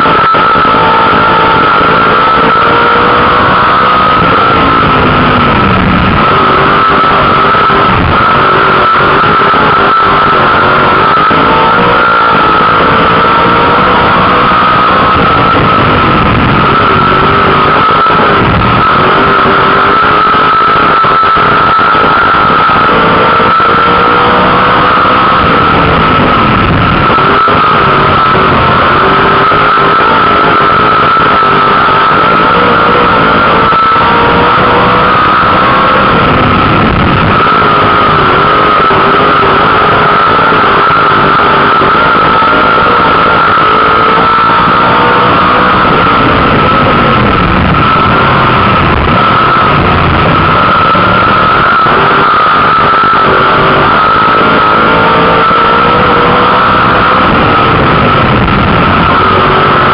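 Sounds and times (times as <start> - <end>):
race car engine running hard: 0.0 - 59.9
steady high whine: 0.0 - 59.9.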